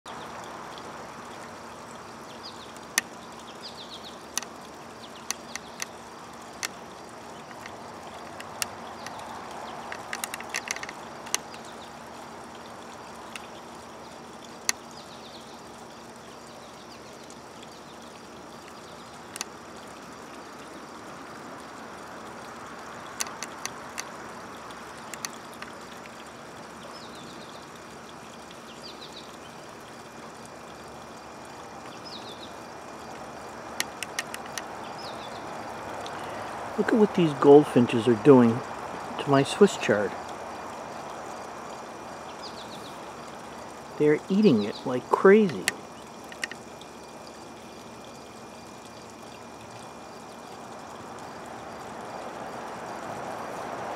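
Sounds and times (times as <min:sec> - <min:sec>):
outdoor background hiss: 0:00.1 - 0:53.9
small birds chirping: 0:01.3 - 0:21.0, 0:22.9 - 0:50.6
sharp clicks: 0:05.2 - 0:06.0, 0:07.5 - 0:11.7, 0:23.2 - 0:24.2, 0:25.0 - 0:26.1, 0:33.8 - 0:34.7, 0:45.4 - 0:46.6.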